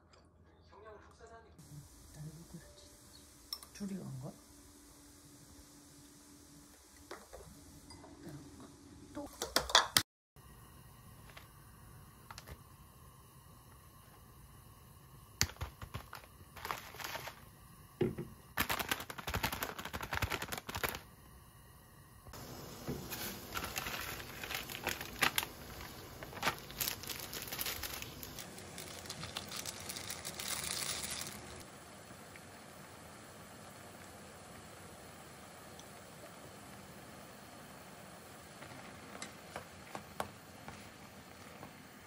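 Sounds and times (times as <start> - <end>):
plastic packet crinkling: 15.5 - 17.4, 18.6 - 21.1, 23.1 - 31.6
soup boiling in a pot: 22.3 - 42.0.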